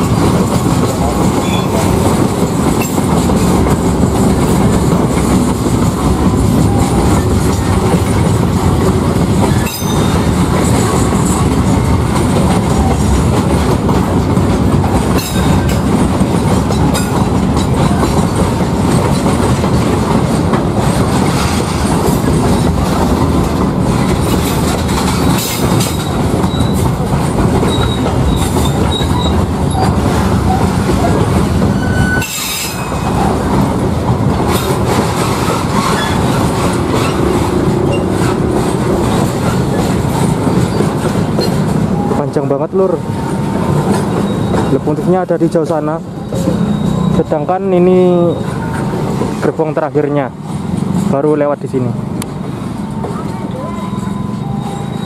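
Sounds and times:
freight train rumbling and clattering: 0:00.0 - 0:55.0
faint high wheel squeals: 0:09.5 - 0:10.2, 0:25.9 - 0:26.9, 0:27.7 - 0:29.9, 0:31.7 - 0:33.2, 0:44.1 - 0:45.1, 0:46.2 - 0:48.9, 0:53.0 - 0:55.0.

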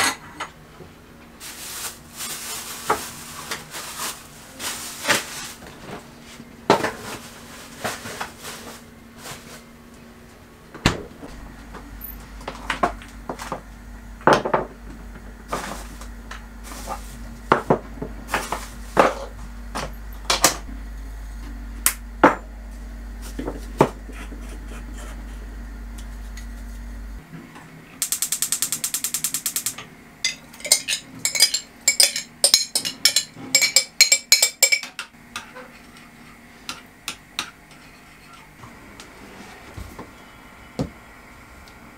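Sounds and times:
low hum: 0:09.3 - 0:28.0
pans and utensils clinking: 0:30.2 - 0:35.9.

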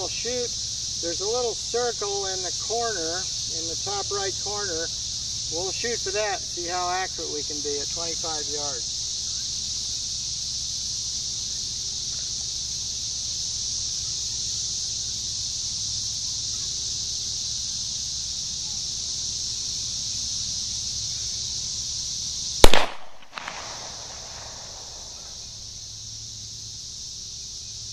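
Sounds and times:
insects buzzing chorus: 0:00.0 - 0:27.9.

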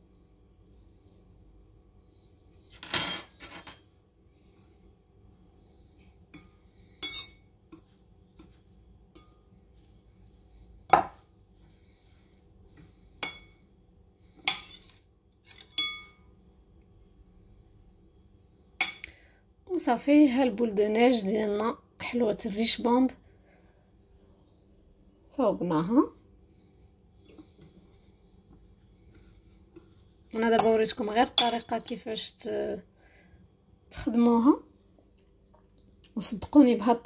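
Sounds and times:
cutlery clinking on glass and pot: 0:14.4 - 0:16.2.

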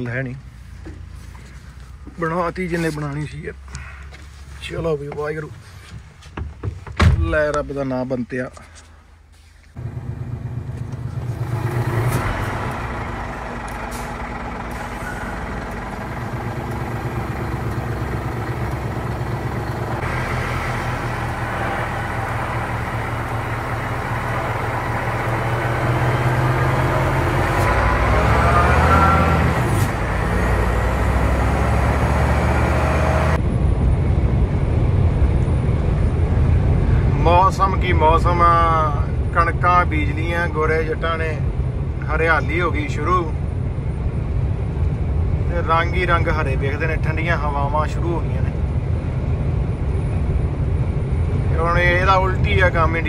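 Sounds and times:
truck diesel engine revving: 0:09.8 - 0:33.4.

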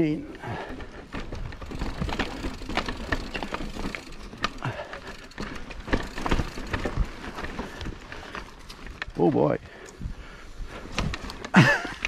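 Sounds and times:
bike clattering on rough trail: 0:00.4 - 0:10.0, 0:10.7 - 0:12.0.

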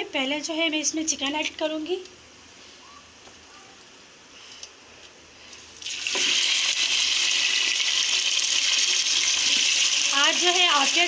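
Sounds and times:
chicken sizzling in hot oil: 0:05.4 - 0:11.0.

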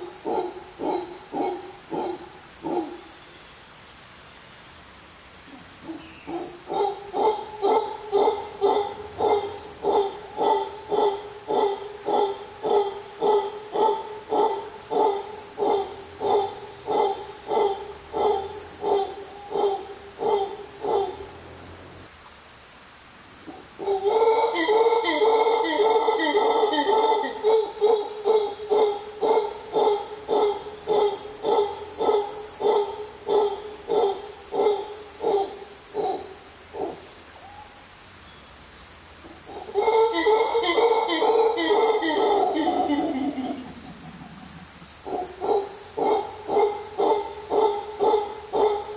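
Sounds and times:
high insect buzz: 0:00.0 - 0:48.9
monkey howling: 0:05.8 - 0:22.0, 0:23.5 - 0:36.2, 0:39.5 - 0:44.2
monkey grunting calls: 0:05.8 - 0:22.1, 0:23.4 - 0:36.2, 0:39.3 - 0:48.9
monkey sustained howl: 0:23.5 - 0:32.2, 0:39.5 - 0:44.2.

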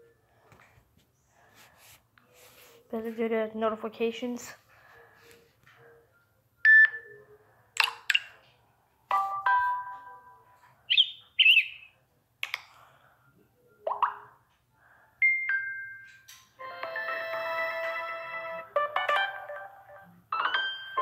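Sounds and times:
phone notification tones: 0:09.1 - 0:10.4.

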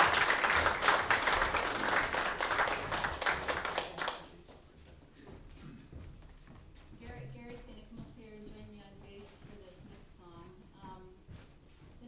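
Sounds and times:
audience applauding: 0:00.0 - 0:04.4.

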